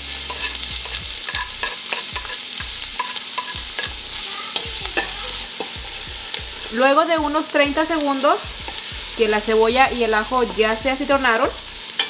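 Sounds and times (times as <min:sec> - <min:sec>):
wooden spatula scraping pot: 0:00.0 - 0:02.4
onion and garlic sizzling: 0:00.0 - 0:12.0.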